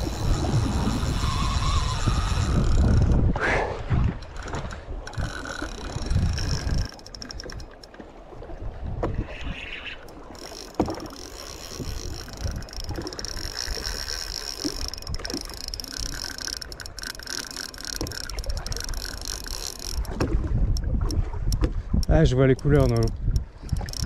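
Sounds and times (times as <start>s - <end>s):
fishing reel ticking rapidly: 0.0s - 3.3s, 4.1s - 8.0s, 9.9s - 24.0s
wind buffeting microphone: 0.0s - 24.0s.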